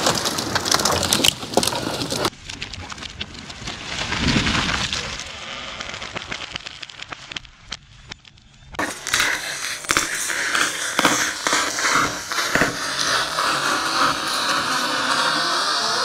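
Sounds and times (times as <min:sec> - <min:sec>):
tree falling with heavy thud: 0:00.0 - 0:07.8
debris crackling down: 0:00.0 - 0:16.0
wood cracking: 0:00.0 - 0:16.0.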